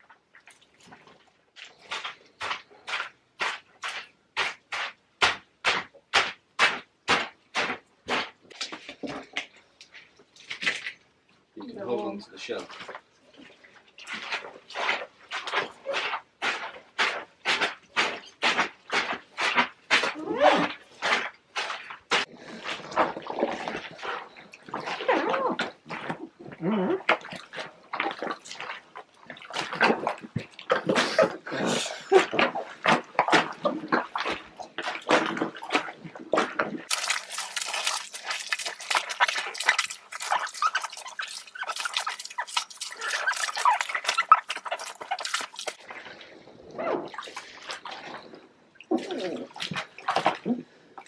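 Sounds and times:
grapes squelching underfoot: 29.6 - 46.0.

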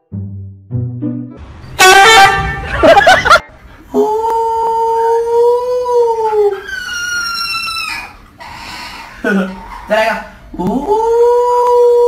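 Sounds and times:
brief loud blast: 1.4 - 3.0
dog howling: 4.6 - 8.2
puppy howling: 4.8 - 9.9.

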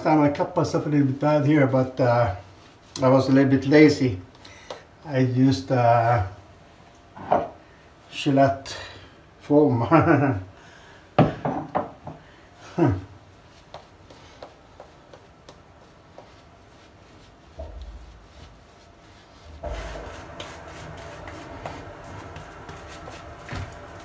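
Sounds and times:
shaving brush rustling on face: 13.3 - 24.0.

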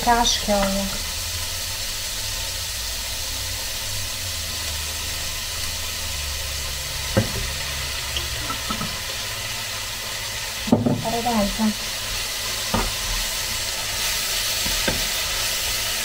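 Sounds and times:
meat sizzling in a pan: 0.0 - 16.0
knock: 10.7 - 11.0.

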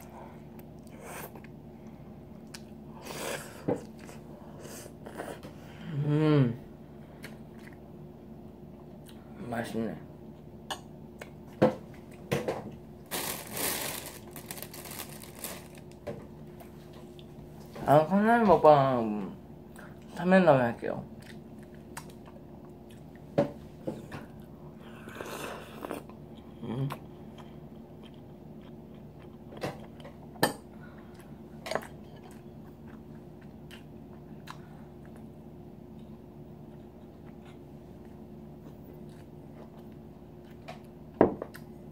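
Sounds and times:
steady low hum: 0.0 - 41.9
quiet chewing: 7.1 - 7.9, 21.2 - 23.3, 23.9 - 30.3, 30.9 - 35.3, 35.9 - 41.8
rustling and crinkling: 13.0 - 17.9.

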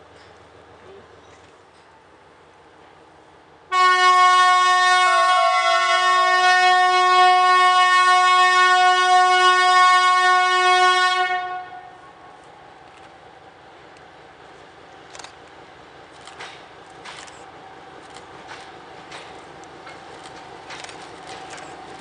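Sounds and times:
locomotive horn blast: 3.7 - 12.2.

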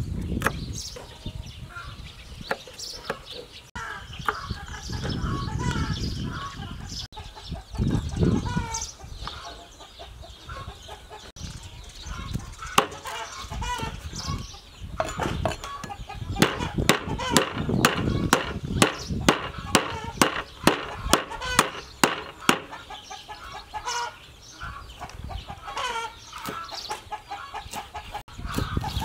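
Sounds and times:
chickens clucking: 0.4 - 29.0
cleaver chopping on wooden block: 12.8 - 13.2, 16.4 - 22.8.

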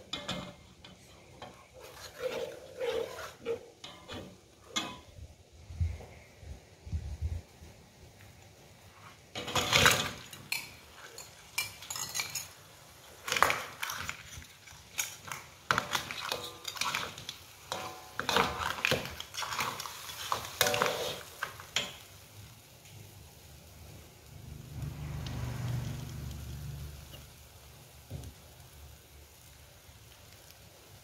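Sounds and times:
metal ladle scraping a wok: 0.0 - 5.1, 9.0 - 22.0
crabs clattering into a wok: 9.4 - 12.6, 13.2 - 22.0.

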